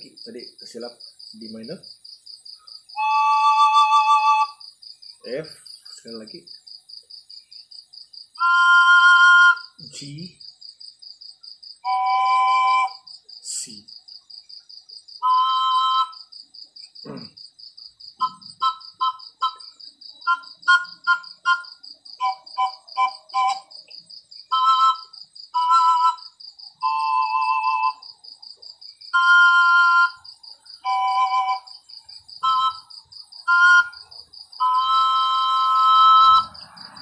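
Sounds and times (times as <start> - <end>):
crickets chirping: 0.0 - 37.0
pan flute playing a tune: 3.0 - 4.6, 8.4 - 10.0, 11.8 - 13.1, 15.2 - 16.2, 18.2 - 23.7, 24.5 - 28.0, 29.1 - 30.2, 30.8 - 31.7, 32.4 - 36.6.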